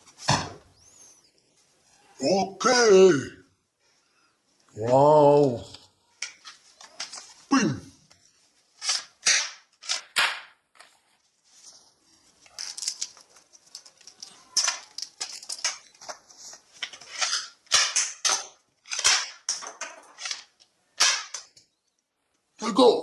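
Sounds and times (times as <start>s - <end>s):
toy guns firing: 8.8s - 10.6s, 17.2s - 21.5s.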